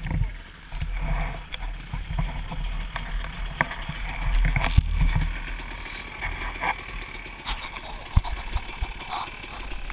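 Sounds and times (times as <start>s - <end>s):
bike knocks and rattles: 0.0s - 9.9s
dirt bike engine running low: 0.0s - 9.9s.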